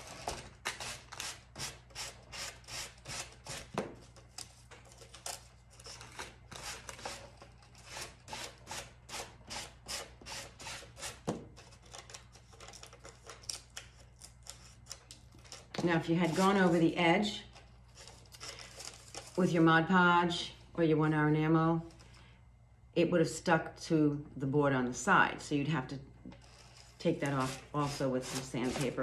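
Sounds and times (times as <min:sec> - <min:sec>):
sanding block scraping wood: 0:26.6 - 0:29.0.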